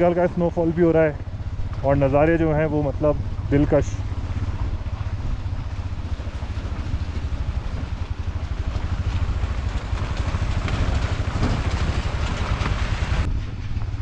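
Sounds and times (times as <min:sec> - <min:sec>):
motorcycle engine rumbling: 0:00.0 - 0:14.0.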